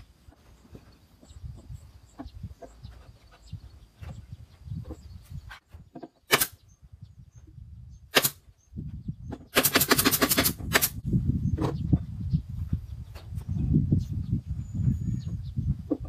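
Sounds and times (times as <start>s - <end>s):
drill driving screws into wood: 9.6s - 11.0s.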